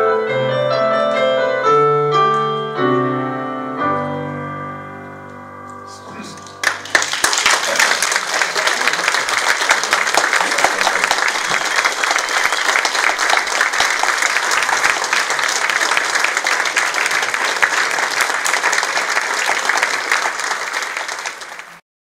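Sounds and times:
audience applauding: 0:06.4 - 0:21.8.

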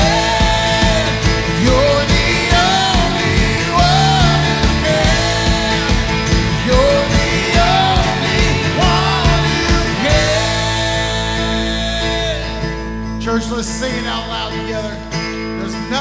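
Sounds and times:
woman singing: 0:00.0 - 0:12.4
live band playing: 0:00.0 - 0:13.2.

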